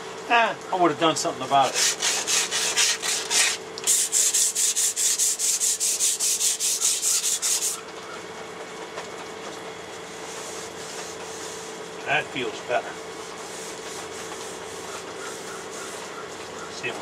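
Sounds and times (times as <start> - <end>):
sandpaper rubbing on metal: 1.6 - 7.8, 13.1 - 16.4.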